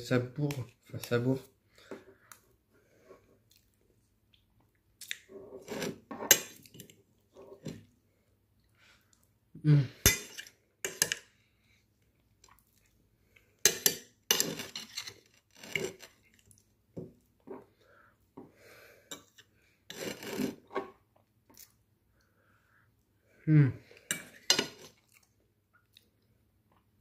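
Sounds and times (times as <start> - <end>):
metal fork scraping a plate: 5.5 - 6.5, 13.7 - 16.2, 19.1 - 20.6.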